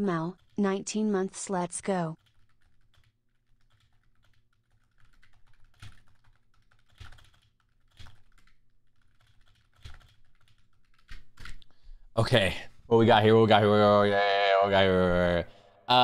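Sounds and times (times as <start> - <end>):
computer keyboard clicks: 2.2 - 11.7.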